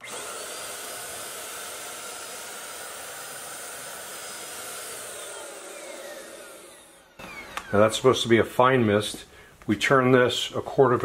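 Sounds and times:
paint sprayer motor whining: 0.0s - 8.3s.

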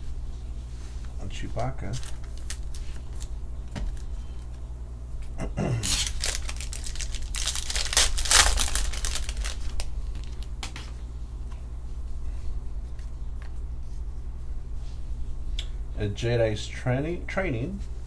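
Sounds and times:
foil pack tearing and crinkling: 1.9s - 3.3s, 5.8s - 10.5s.

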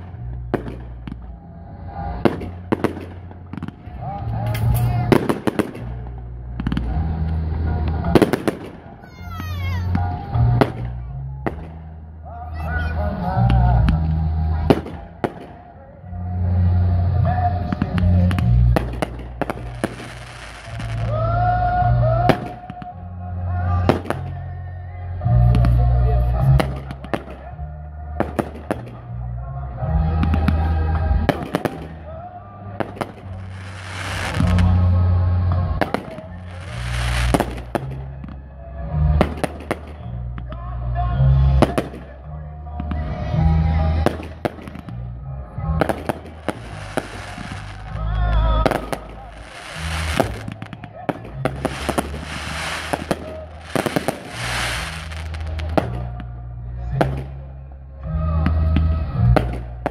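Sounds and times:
fireworks bangs and cracks: 0.0s - 15.8s, 17.2s - 23.0s, 23.7s - 24.4s, 25.3s - 29.2s, 30.0s - 40.7s, 41.4s - 45.1s, 45.7s - 56.4s, 57.0s - 57.6s, 58.4s - 59.9s
fireworks crackling hiss: 16.6s - 23.0s, 32.8s - 38.1s, 45.9s - 56.2s.

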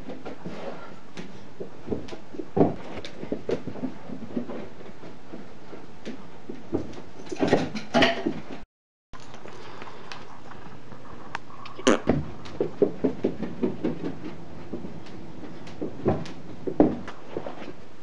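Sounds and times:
bumps and rustling: 0.0s - 8.6s, 10.3s - 18.0s
light knocks and thumps: 0.0s - 8.6s, 12.0s - 17.6s.

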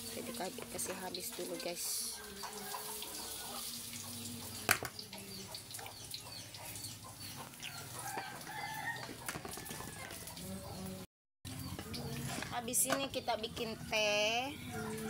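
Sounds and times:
fritters frying in oil: 0.0s - 10.4s.

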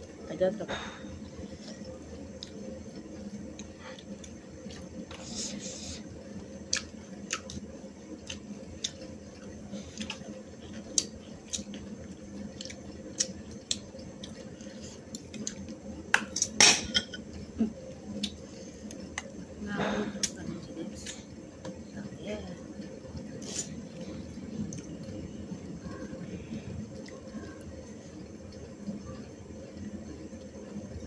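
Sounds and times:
people chewing food: 1.0s - 31.0s.

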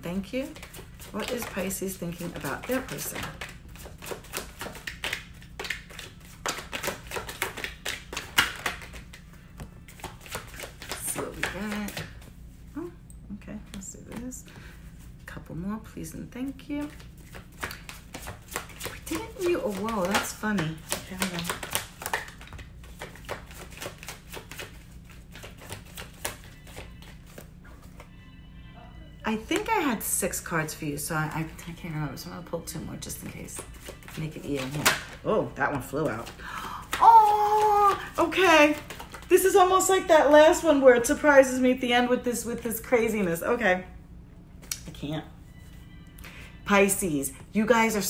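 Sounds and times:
cards being shuffled: 0.2s - 12.7s, 16.8s - 28.1s, 33.0s - 39.8s.

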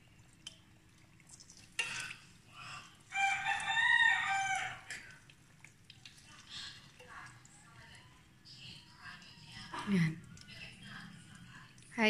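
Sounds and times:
faint sizzle of frying in oil: 0.0s - 12.0s
rooster crowing: 3.1s - 5.0s.

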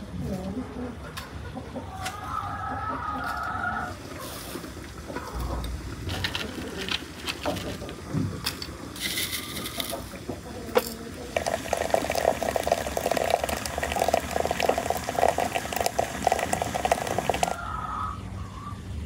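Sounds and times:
water pouring into glass teapot: 11.3s - 17.6s.

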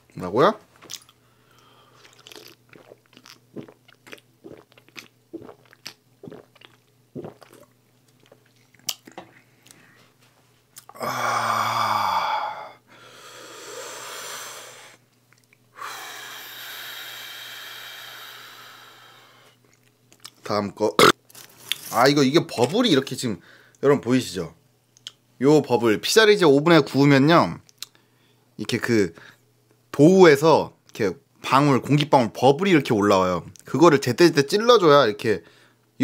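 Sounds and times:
person gulping from a can: 1.9s - 9.8s
loud burp: 10.9s - 12.7s
breathy exhales: 10.9s - 15.0s, 15.8s - 19.6s.

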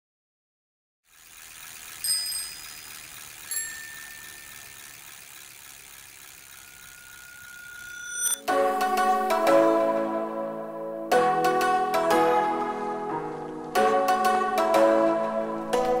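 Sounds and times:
bicycle bell ringing: 1.1s - 8.4s
steady high tone: 2.0s - 5.5s, 6.2s - 12.6s.

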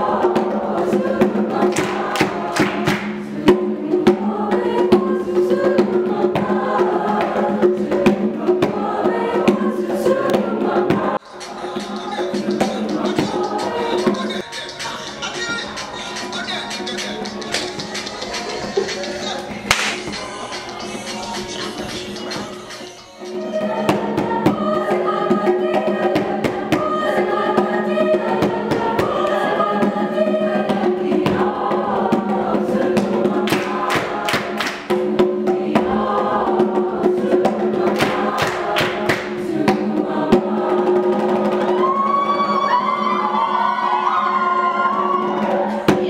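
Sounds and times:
group of voices singing: 0.0s - 46.0s
sharp drum or clap hits: 1.2s - 4.2s, 19.7s - 20.2s, 33.0s - 36.0s, 37.9s - 39.9s.

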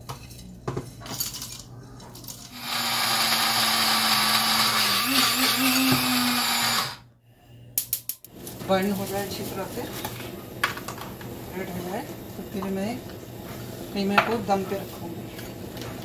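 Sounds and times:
electric spice grinder running: 2.5s - 7.0s.

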